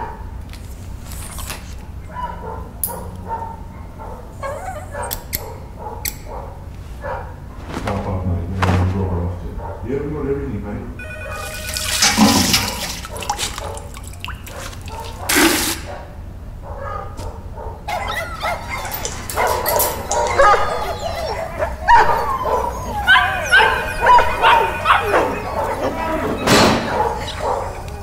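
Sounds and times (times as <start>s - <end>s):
puppies yelping and whimpering: 4.3s - 5.3s, 17.9s - 28.0s
water pouring and splashing: 11.3s - 15.8s.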